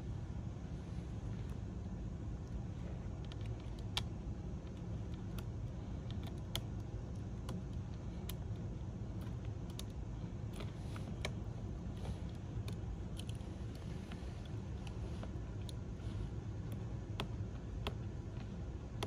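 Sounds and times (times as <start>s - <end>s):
steady low hum: 0.0s - 19.0s
small plastic clicks and taps: 3.2s - 15.9s, 16.5s - 19.0s.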